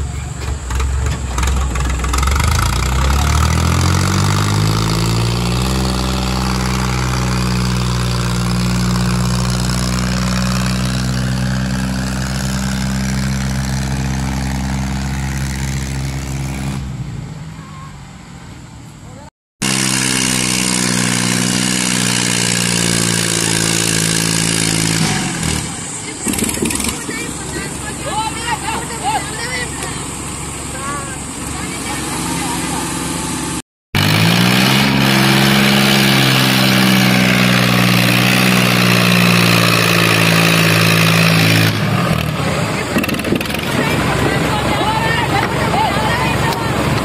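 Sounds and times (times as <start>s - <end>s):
tractor diesel engines revving: 0.0s - 47.0s.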